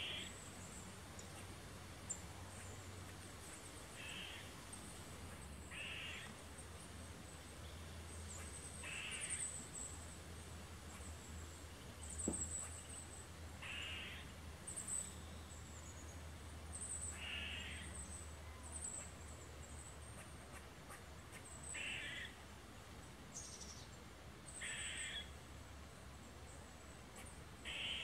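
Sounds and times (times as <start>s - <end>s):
squirrel alarm barks: 5.7s - 6.3s, 8.3s - 9.4s, 13.6s - 14.3s, 17.1s - 17.8s, 20.1s - 22.4s, 24.6s - 25.3s, 27.1s - 28.0s.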